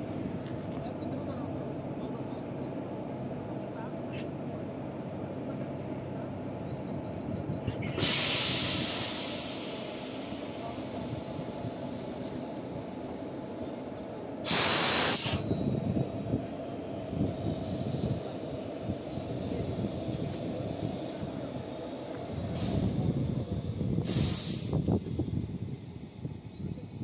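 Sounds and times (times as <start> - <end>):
electric locomotive humming: 0.0 - 27.0
compressed air hissing: 8.0 - 11.9, 14.4 - 15.5, 24.0 - 26.2.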